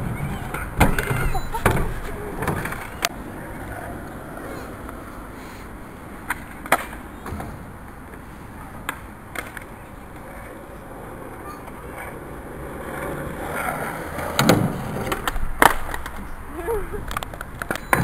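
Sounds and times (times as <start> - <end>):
skateboard wheels rolling on tarmac: 0.0 - 18.0
skateboard clacking on ground: 6.2 - 8.2, 8.8 - 16.4, 17.0 - 18.0.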